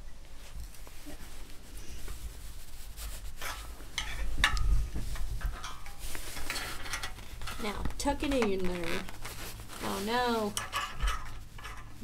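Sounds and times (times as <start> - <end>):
metal scraping and clicking: 3.4 - 8.8, 10.5 - 12.0.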